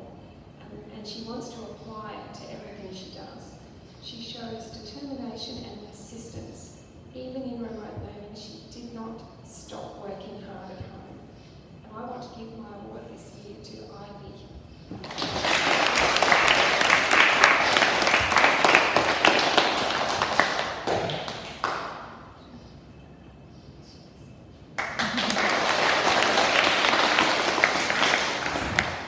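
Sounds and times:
children applauding: 15.0s - 22.0s, 24.8s - 29.0s.

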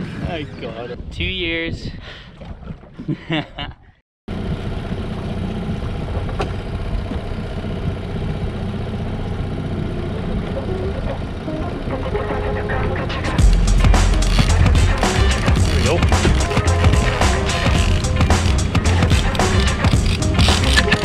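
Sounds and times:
outboard motor running: 4.3s - 21.0s.

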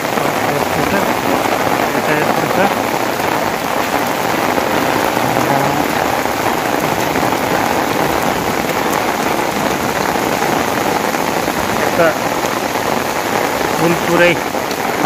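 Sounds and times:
steady rain: 0.0s - 15.0s.

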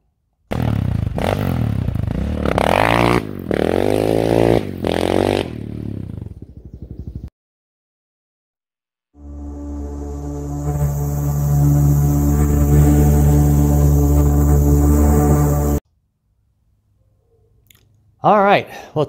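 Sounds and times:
quad engine revving: 0.5s - 6.5s.

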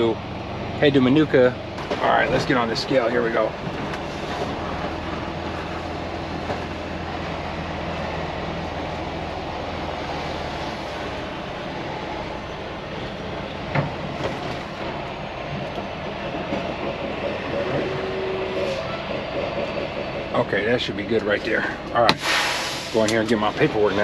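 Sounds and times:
diesel truck engine: 0.0s - 24.0s
truck cab rattle: 0.8s - 9.2s.

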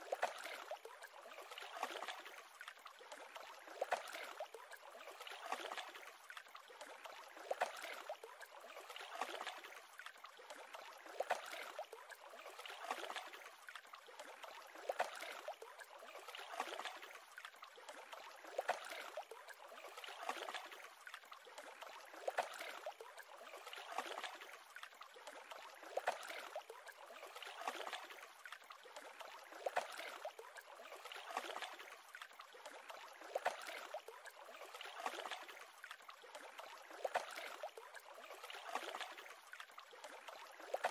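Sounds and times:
lake waves lapping: 3.2s - 6.1s, 19.8s - 40.9s.

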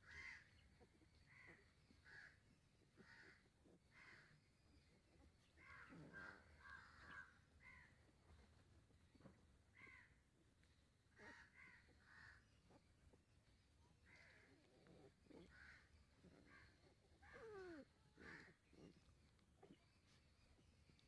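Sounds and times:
faint short animal calls: 14.0s - 20.6s.

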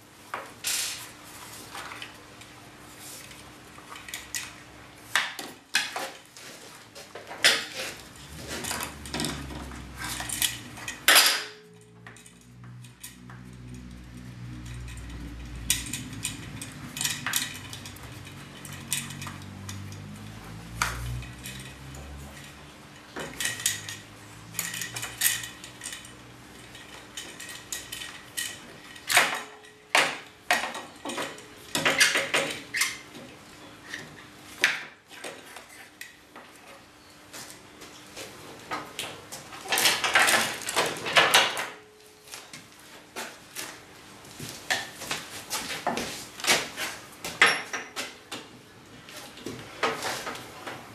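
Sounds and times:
metal parts and tools clattering: 7.4s - 13.7s, 14.4s - 20.1s, 21.1s - 33.0s.

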